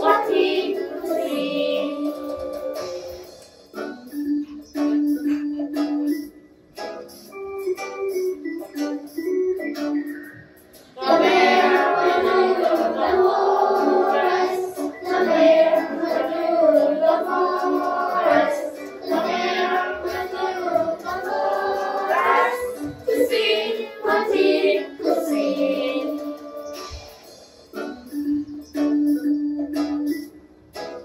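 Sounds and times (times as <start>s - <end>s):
children singing muffled: 0.0s - 6.3s, 10.8s - 29.3s.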